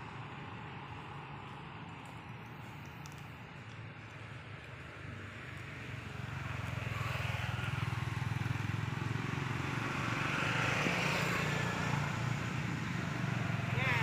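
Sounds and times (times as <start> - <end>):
vehicle engine hum and road noise: 0.0 - 14.0.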